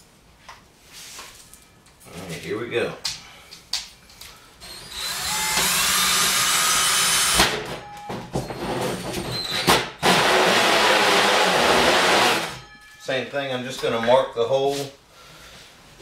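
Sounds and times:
cordless drill motor whine: 4.6 - 7.4.

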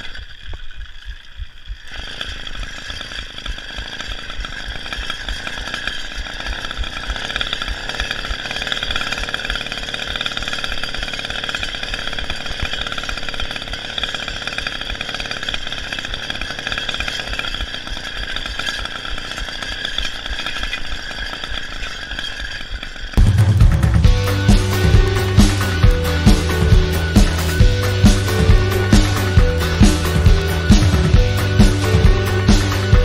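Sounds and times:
motorized bicycle engine running: 0.0 - 33.0
music: 23.2 - 33.0.

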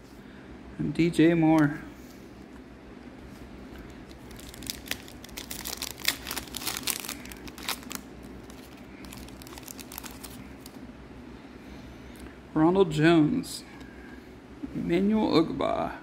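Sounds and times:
foil wrapper tearing and crinkling: 4.1 - 10.8.

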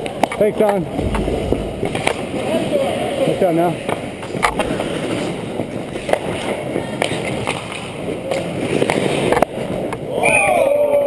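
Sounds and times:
hockey sticks and puck clacking: 3.9 - 10.1
skate blades scraping ice: 4.3 - 10.0.

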